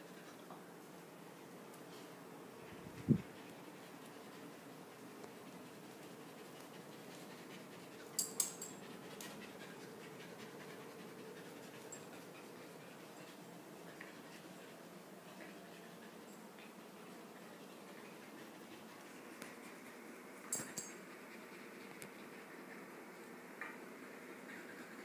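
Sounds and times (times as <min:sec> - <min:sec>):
puppy panting: 0:03.2 - 0:22.9.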